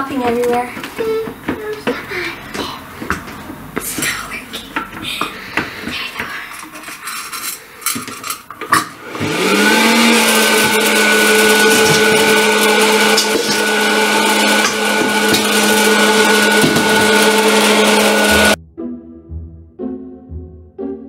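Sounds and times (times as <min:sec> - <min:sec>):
popcorn popper fan whirring: 0:08.0 - 0:18.6.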